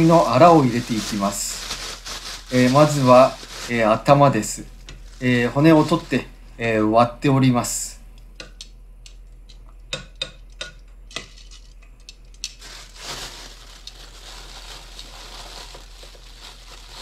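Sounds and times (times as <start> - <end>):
plastic bag rustling: 0.0 - 6.4, 12.4 - 17.0.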